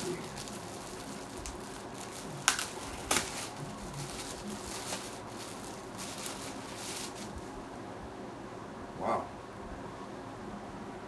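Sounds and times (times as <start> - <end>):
sharp packaging crackles: 0.0 - 7.5
packaging rustling and crinkling: 0.0 - 7.6.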